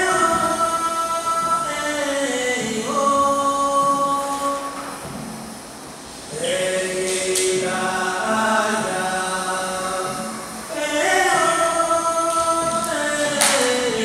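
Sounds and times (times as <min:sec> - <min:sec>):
choir singing held notes: 0:00.0 - 0:14.0.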